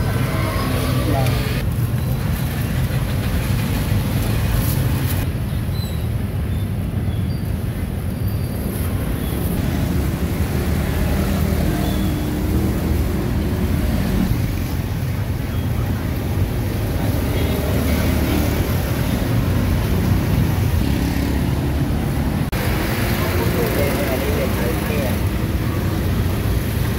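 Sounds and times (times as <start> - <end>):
cars and motorbikes passing: 0.0 - 1.7, 8.6 - 26.9
traffic rumble: 0.0 - 26.9.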